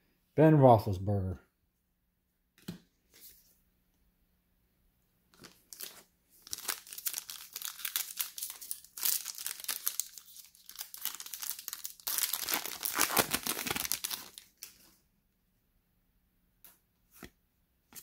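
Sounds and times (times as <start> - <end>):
foil wrapper crinkling and tearing: 5.4 - 14.8.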